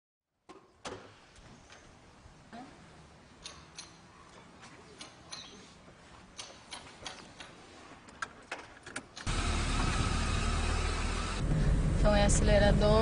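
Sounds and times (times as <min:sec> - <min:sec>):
car engine running: 0:09.3 - 0:13.0.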